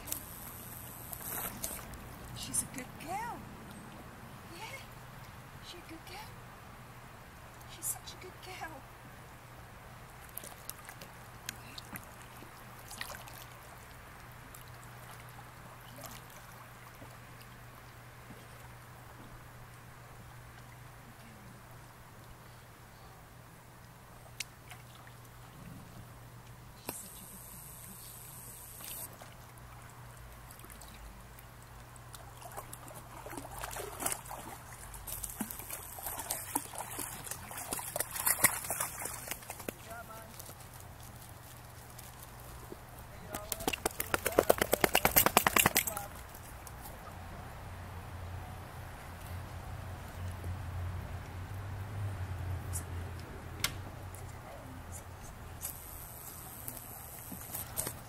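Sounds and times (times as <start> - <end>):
faint low hum: 0.0 - 58.0
river water trickling: 0.1 - 5.6, 8.8 - 54.4
light splashes: 10.1 - 18.8, 28.8 - 47.2.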